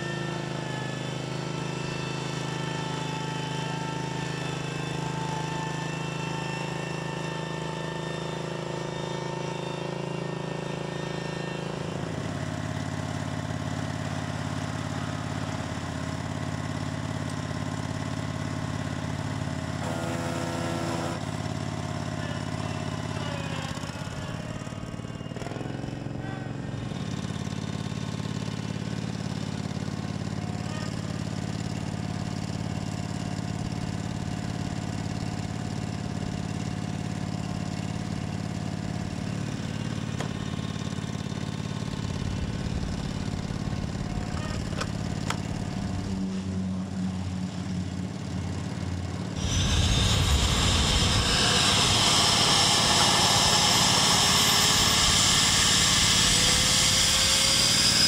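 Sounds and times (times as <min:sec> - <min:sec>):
small gasoline engine idling: 0:00.0 - 0:58.0
jet turbine engine spooling up: 0:39.3 - 0:46.7, 0:49.3 - 0:58.0.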